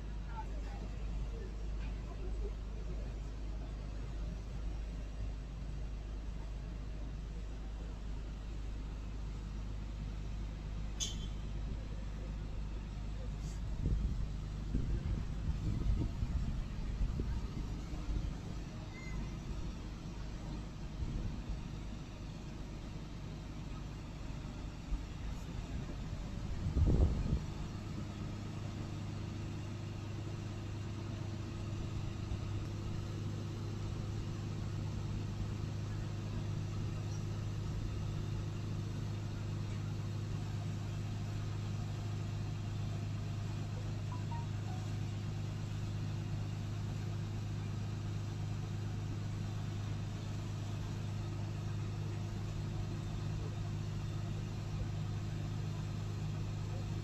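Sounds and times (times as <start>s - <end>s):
engine humming steadily: 0.0s - 57.0s.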